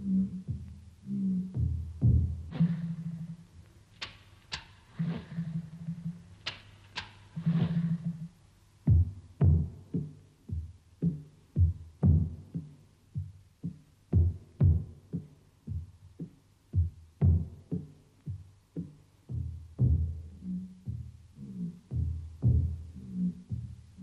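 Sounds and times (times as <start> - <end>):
low-pitched drum beating: 1.4 - 3.5, 8.9 - 21.1.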